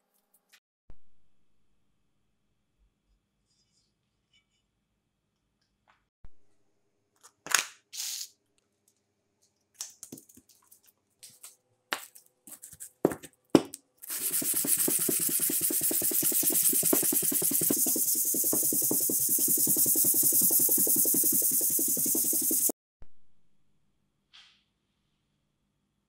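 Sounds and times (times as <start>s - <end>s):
blade scraping on sandpaper: 14.0s - 22.7s.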